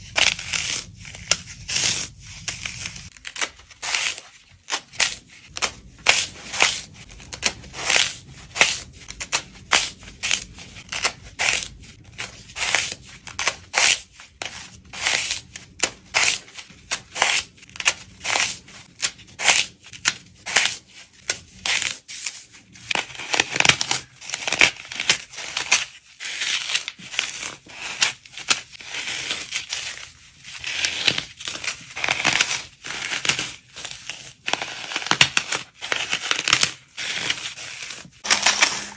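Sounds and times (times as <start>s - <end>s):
floral foam crunching by hand: 30.7s - 38.9s.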